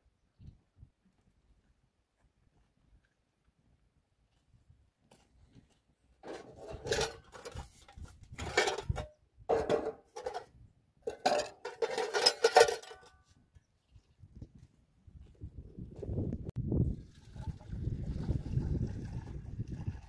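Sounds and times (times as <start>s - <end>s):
metal pots clattering and clinking: 6.2s - 10.5s, 11.1s - 13.2s.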